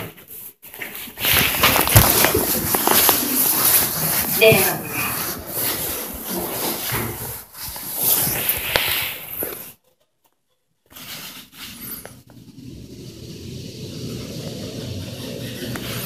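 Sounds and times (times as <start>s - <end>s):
rustling and knocking: 0.7s - 9.8s.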